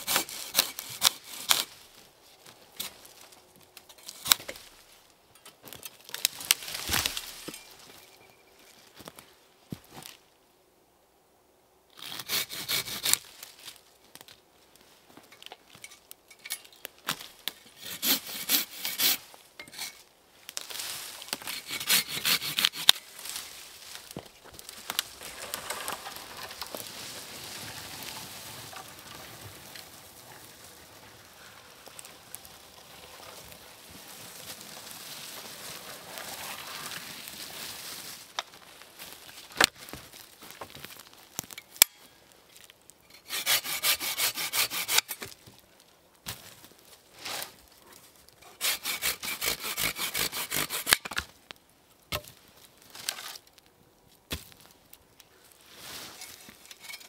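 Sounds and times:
handsaw cutting wood: 0.0s - 1.6s, 12.0s - 13.2s, 17.8s - 19.2s, 21.5s - 23.0s, 43.2s - 45.2s, 48.5s - 51.0s.

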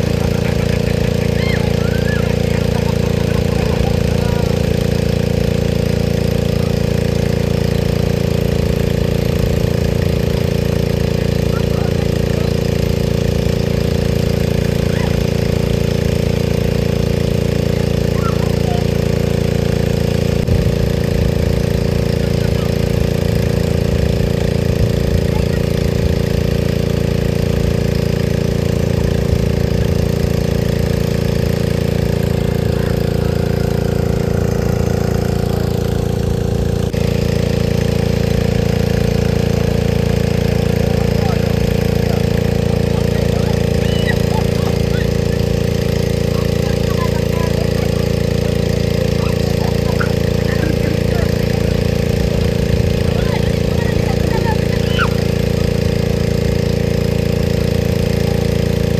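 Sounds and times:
engine running steadily: 0.0s - 58.9s.

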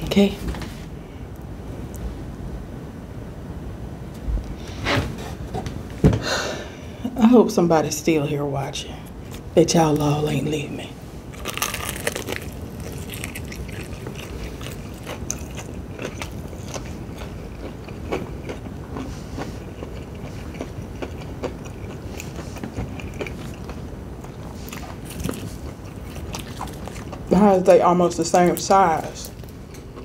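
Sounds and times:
crunching fried chicken: 11.3s - 27.4s.

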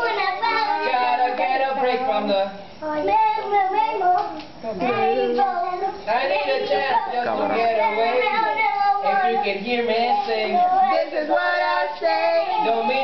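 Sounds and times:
children singing: 0.0s - 1.4s, 4.8s - 13.0s
children chattering: 0.0s - 13.0s.

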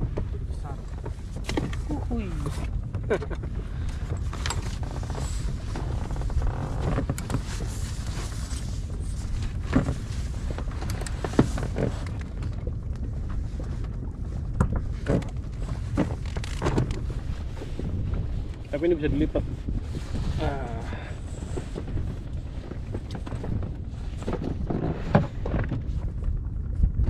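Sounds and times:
wind rumble on microphone: 0.0s - 27.0s.

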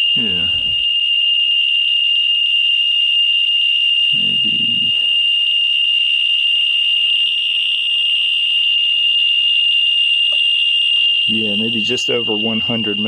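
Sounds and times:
geiger counter high-pitched buzz: 0.0s - 1.9s, 4.0s - 6.8s, 10.3s - 13.0s.

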